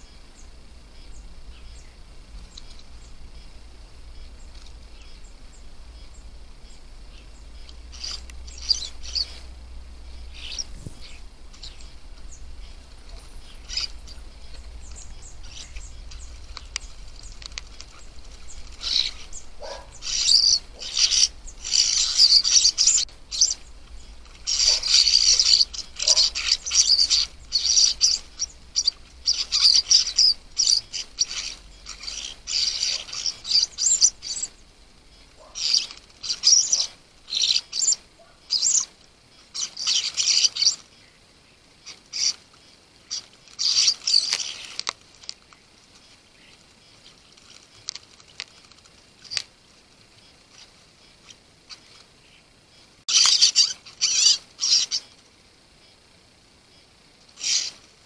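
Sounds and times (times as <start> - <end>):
birds splashing in water: 0.0 - 38.3
starlings harsh calls: 0.0 - 49.5, 50.1 - 58.0.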